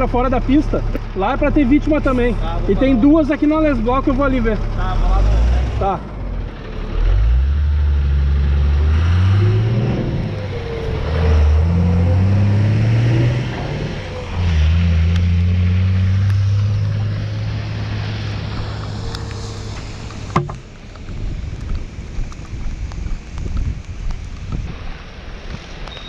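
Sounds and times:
vehicle engine accelerating: 0:00.0 - 0:21.2
tyre hiss on wet road: 0:16.8 - 0:21.3, 0:21.9 - 0:26.0.

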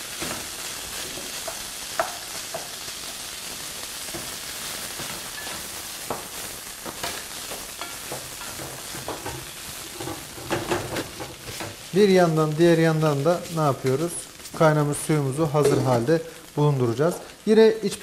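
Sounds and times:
rice and onions sizzling: 0:00.0 - 0:18.0
spatula knocking and scraping pan: 0:05.4 - 0:11.9.

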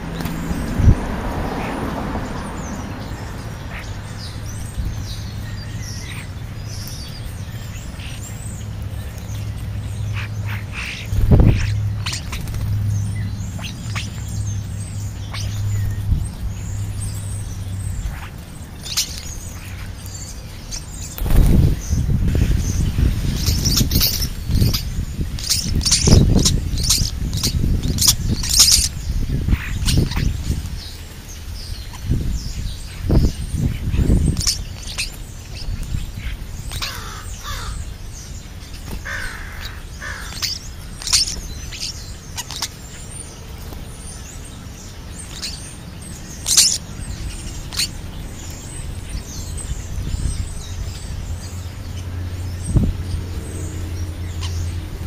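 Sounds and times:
starlings squawking and clicking: 0:00.0 - 0:55.0
wing flutter: 0:07.9 - 0:32.1
low bumps near microphone: 0:21.2 - 0:25.4.

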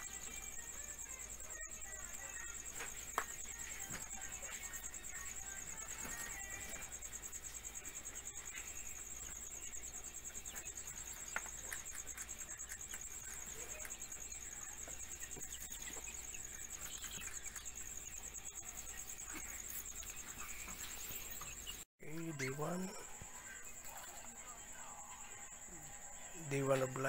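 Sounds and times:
crickets trilling: 0:00.0 - 0:27.0.

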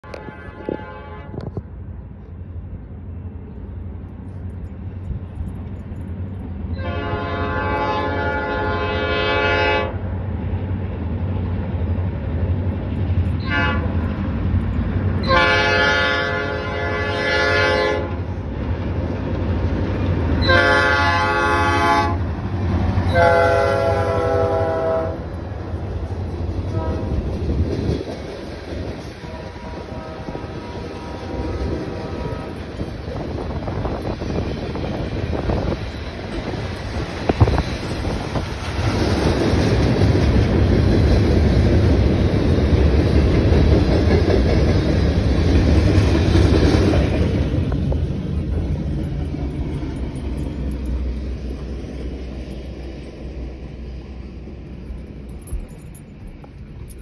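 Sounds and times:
locomotive air horn blasts: 0:00.0 - 0:01.6, 0:06.7 - 0:10.0, 0:13.4 - 0:14.1, 0:15.2 - 0:18.3, 0:20.4 - 0:22.3, 0:23.0 - 0:25.3, 0:26.7 - 0:27.2, 0:29.2 - 0:32.8
freight cars rolling past: 0:01.5 - 0:57.0.

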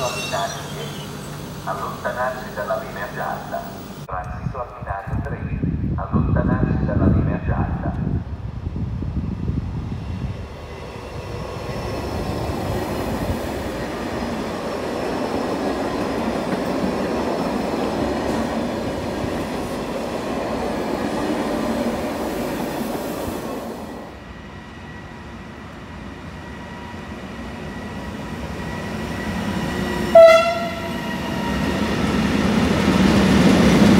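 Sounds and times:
train wheels rumbling on rails: 0:05.1 - 0:33.9
locomotive horn blast: 0:30.1 - 0:31.0.

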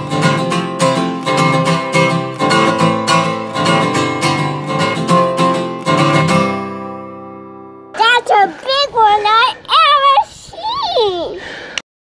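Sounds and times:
acoustic guitar strumming: 0:00.0 - 0:08.8.

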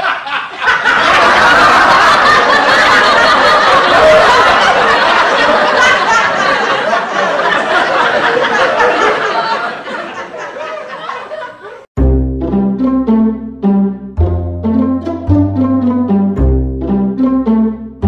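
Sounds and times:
loud human laughter: 0:00.0 - 0:11.9.

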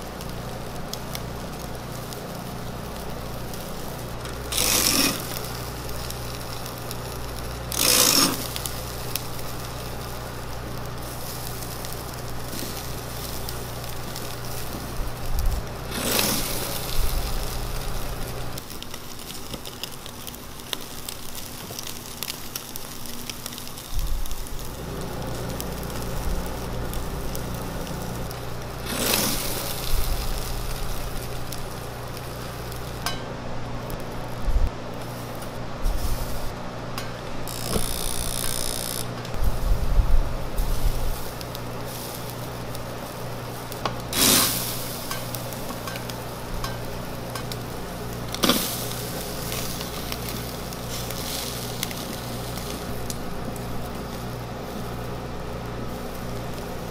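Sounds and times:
chicken sizzling on a grill: 0:00.0 - 0:56.9
steady low hum: 0:00.0 - 0:56.9
brief loud hisses: 0:44.1 - 0:44.9.

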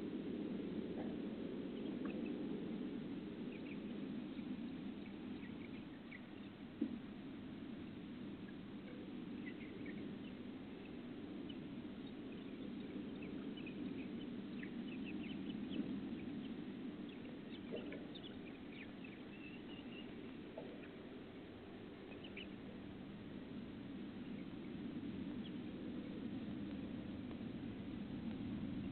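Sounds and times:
steady low hiss: 0:00.0 - 0:28.9
chickens clucking and chirping: 0:03.4 - 0:06.6, 0:08.0 - 0:26.4.

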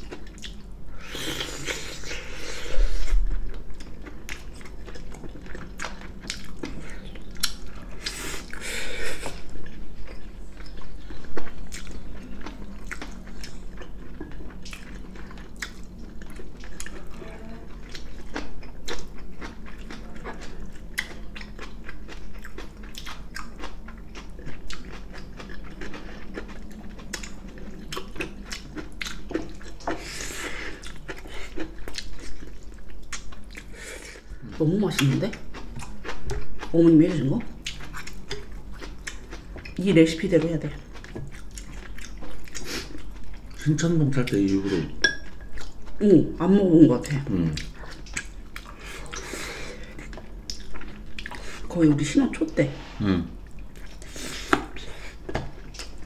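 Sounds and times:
wet chewing and mouth smacks: 0:00.0 - 0:00.7, 0:03.0 - 0:08.6, 0:09.4 - 0:17.0, 0:17.8 - 0:30.0, 0:30.8 - 0:33.7, 0:37.6 - 0:39.8, 0:40.8 - 0:43.6, 0:47.5 - 0:51.6, 0:53.5 - 0:56.0.

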